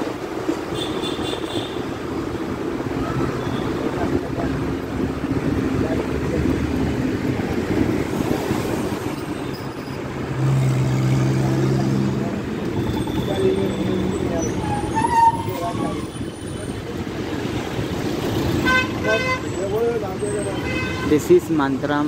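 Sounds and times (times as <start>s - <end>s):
bus engine and road noise: 0.0s - 22.0s.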